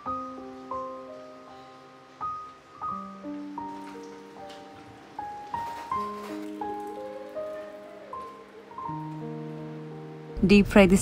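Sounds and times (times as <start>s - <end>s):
gentle keyboard music: 0.0s - 11.0s.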